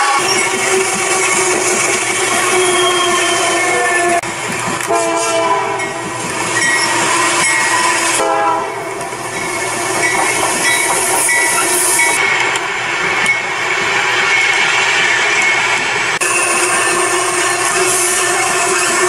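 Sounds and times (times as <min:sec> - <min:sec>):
locomotive horn blasts: 0:00.0 - 0:04.2, 0:04.8 - 0:06.0, 0:07.8 - 0:08.9
train rumble and clatter: 0:00.0 - 0:19.0.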